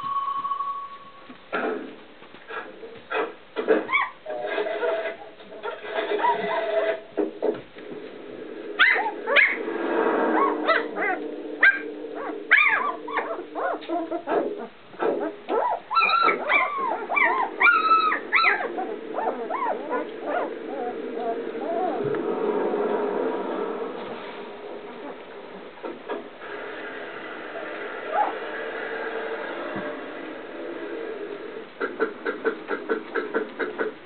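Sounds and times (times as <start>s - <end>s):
puppies squeaking and whimpering: 3.9s - 4.2s, 5.6s - 7.0s, 10.4s - 22.1s
steady low hum: 7.3s - 15.7s.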